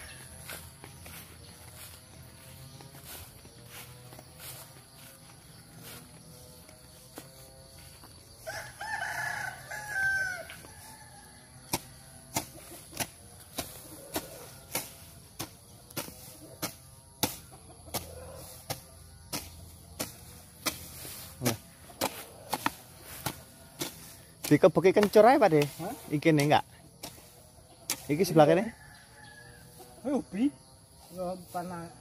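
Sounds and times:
rooster crowing: 8.3s - 12.0s, 28.3s - 30.0s.

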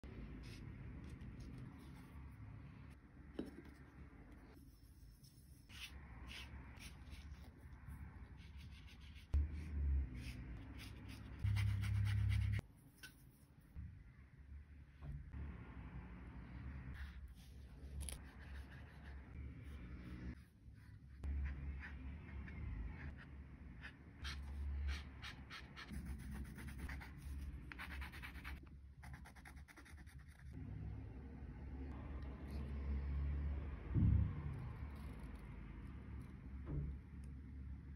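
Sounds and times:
paintbrush scratching on paper: 0.4s - 2.2s, 4.5s - 13.4s, 17.0s - 30.6s
loud low rumble: 30.6s - 34.9s.

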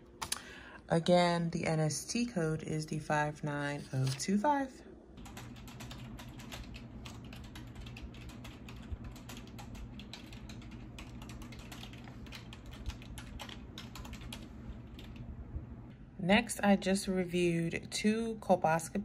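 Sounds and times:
low steady hum: 0.0s - 19.0s
keyboard typing: 5.2s - 15.2s.

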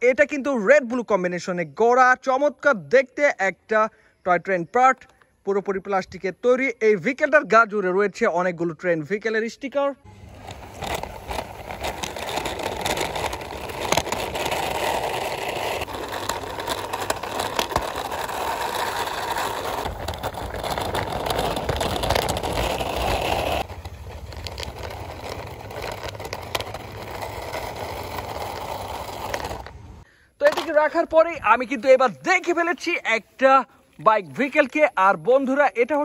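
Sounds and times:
toy train wheels rolling on stone: 10.1s - 33.0s.

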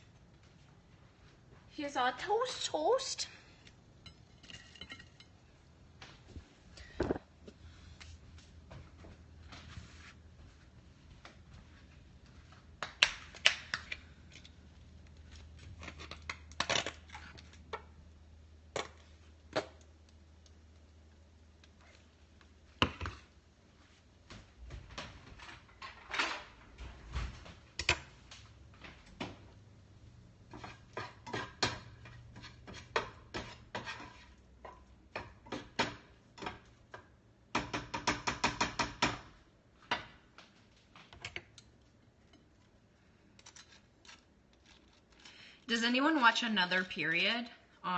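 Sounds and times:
kitchen utensils and dishes clinking: 4.0s - 5.4s
spatula scraping a skillet: 30.5s - 35.8s.

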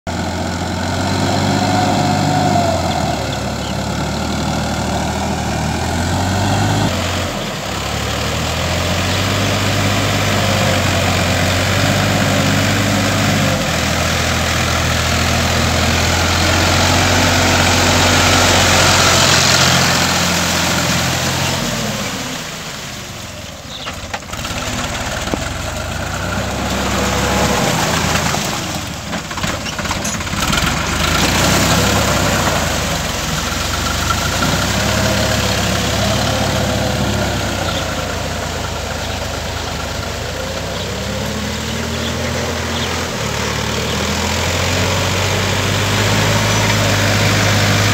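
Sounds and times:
diesel tractor engine running: 0.0s - 47.9s.

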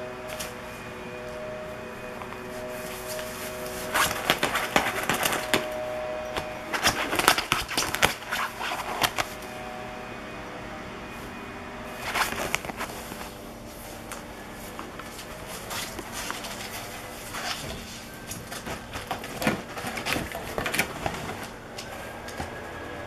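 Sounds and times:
fabric rustling and crinkling: 0.1s - 9.4s, 11.9s - 22.8s.

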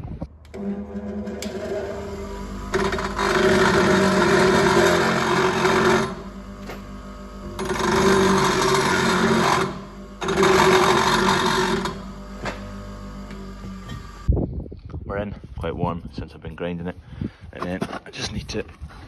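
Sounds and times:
bench grinder motor humming: 0.4s - 14.3s
steel grinding on wheel: 0.5s - 6.8s, 7.4s - 12.5s.

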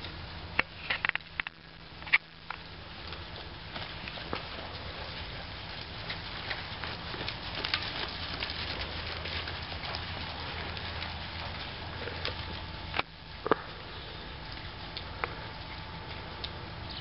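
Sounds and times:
steady low hum: 0.0s - 17.0s
saddle clicking and creaking: 0.8s - 13.7s
hooves on soft dirt: 1.9s - 17.0s.

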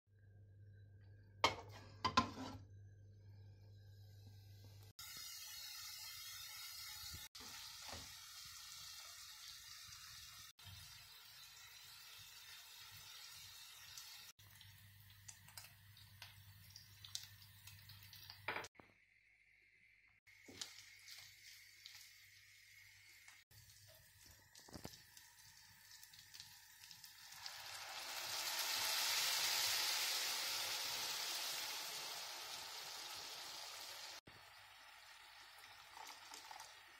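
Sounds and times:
meat sizzling in a pan: 5.0s - 18.6s, 20.3s - 36.9s.

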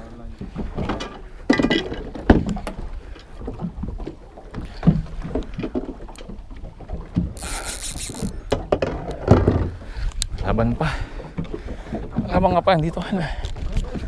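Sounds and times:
wind rumbling on microphone: 6.8s - 14.0s
fishing reel cranking rattles: 7.4s - 8.5s.

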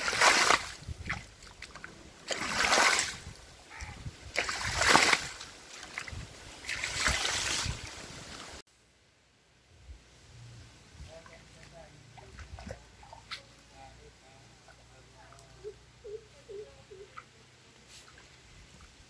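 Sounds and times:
water gushing over rocks: 0.0s - 3.3s, 4.3s - 8.6s.

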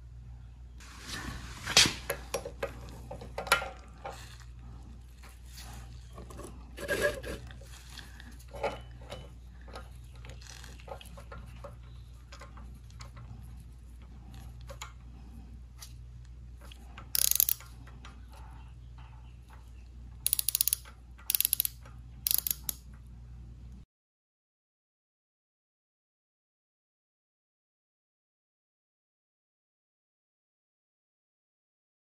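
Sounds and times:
steady low hum: 0.0s - 23.8s.

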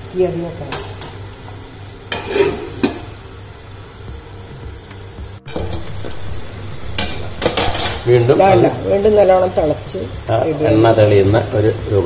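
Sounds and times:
metal lid clinking on pot: 2.1s - 3.1s.

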